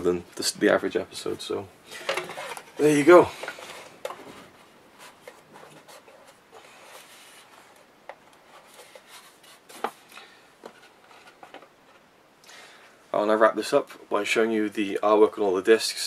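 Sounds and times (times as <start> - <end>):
case rubbing and scraping: 2.0 - 7.8.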